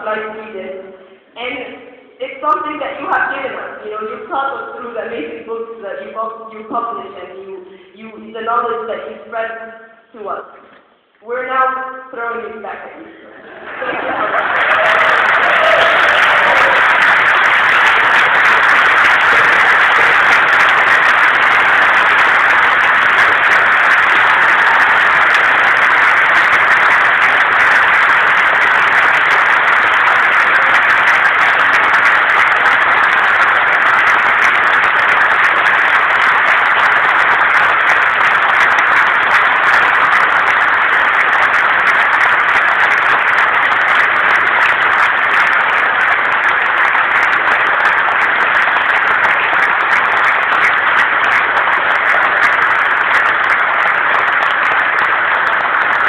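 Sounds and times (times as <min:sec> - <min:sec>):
audience applauding loudly: 0:13.4 - 0:56.0.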